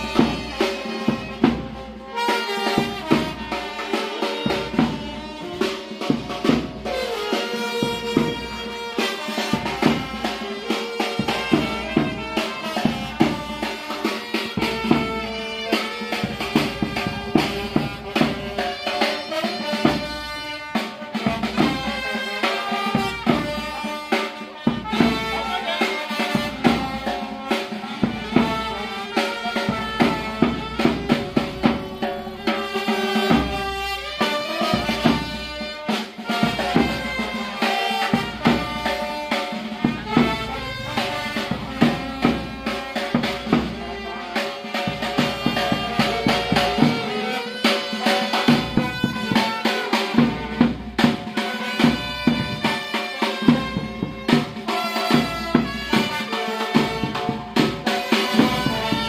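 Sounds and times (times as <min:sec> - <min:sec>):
brass band playing: 0:00.0 - 0:59.0
snare drum strokes: 0:00.0 - 0:59.0.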